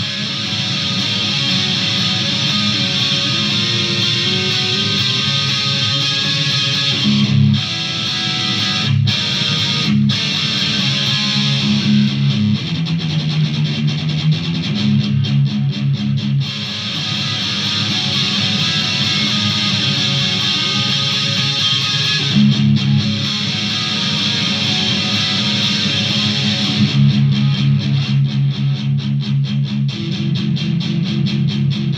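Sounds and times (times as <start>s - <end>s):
electric guitar chugging riff: 0.0s - 31.9s.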